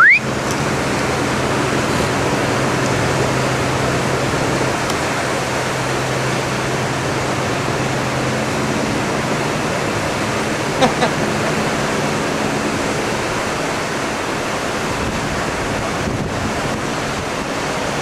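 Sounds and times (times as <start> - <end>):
loud rising chirp: 0.0 - 0.3
low ship hum: 0.0 - 18.0
wind and water rushing: 0.0 - 18.0.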